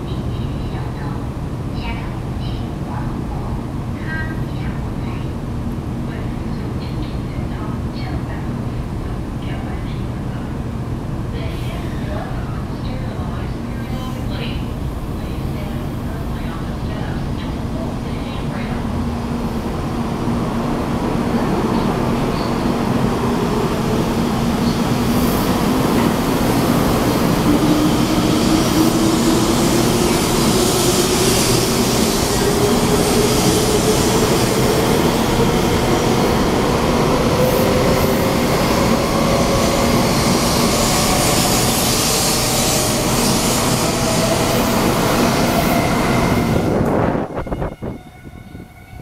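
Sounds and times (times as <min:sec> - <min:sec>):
rising train whine: 0:00.0 - 0:49.0
train accelerating past: 0:18.8 - 0:48.9.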